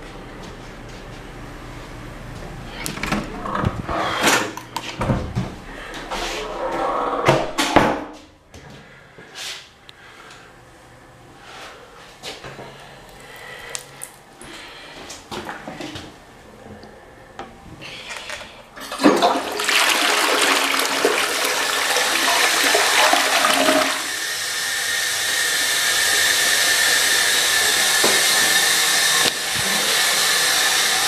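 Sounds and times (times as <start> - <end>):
toilet flushing: 17.9 - 31.0
toilet tank refilling hiss: 18.8 - 31.0.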